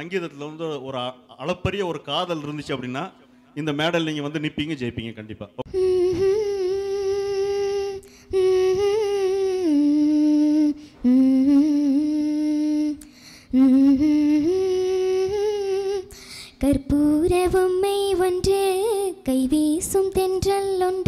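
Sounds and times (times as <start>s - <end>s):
girl humming a slow melody: 5.7s - 19.2s.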